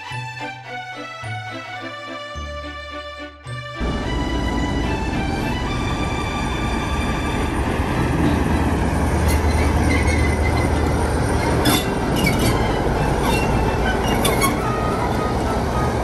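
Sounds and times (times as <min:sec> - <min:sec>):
diesel locomotive engine rumble: 0:00.0 - 0:16.0
wheel squeals and clanks: 0:05.7 - 0:16.0.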